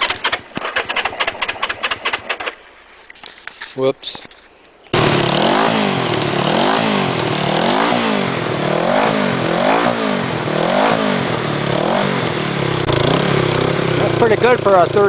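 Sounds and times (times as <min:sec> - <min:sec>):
motorcycle engine revving: 0:04.9 - 0:15.0.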